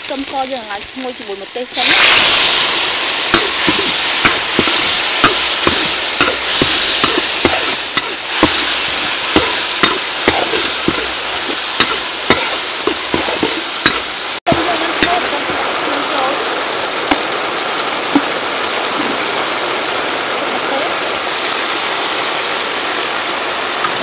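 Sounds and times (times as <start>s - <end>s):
sauce sizzling in hot oil: 0.0s - 24.0s
metal ladle scraping wok: 1.8s - 15.6s.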